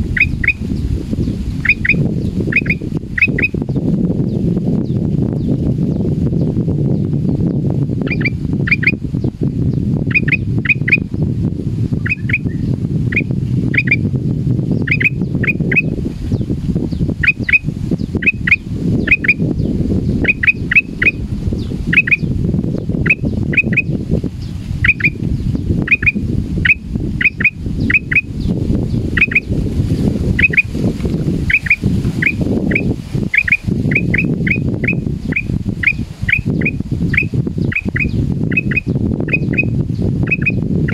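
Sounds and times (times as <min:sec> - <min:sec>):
steady low rumble: 0:00.0 - 0:40.9
bird whistled calls: 0:00.2 - 0:00.6, 0:01.6 - 0:03.6, 0:08.1 - 0:09.0, 0:10.1 - 0:11.1, 0:12.0 - 0:14.0, 0:14.8 - 0:15.9, 0:18.2 - 0:19.4, 0:20.2 - 0:21.2, 0:21.9 - 0:22.3, 0:24.8 - 0:25.2, 0:25.9 - 0:28.3, 0:31.5 - 0:40.9.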